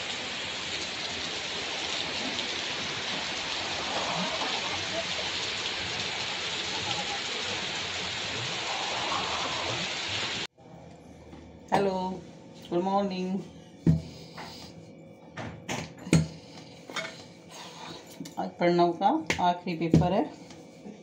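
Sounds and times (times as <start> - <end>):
heavy rain on pavement: 0.0 - 10.5.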